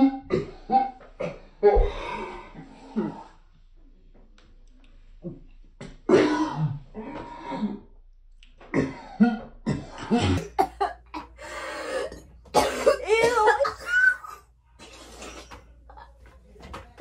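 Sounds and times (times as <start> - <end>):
person clearing throat: 0.0 - 2.3, 6.1 - 7.9, 8.7 - 11.3, 12.0 - 15.6
person coughing: 6.1 - 6.8, 8.7 - 15.6.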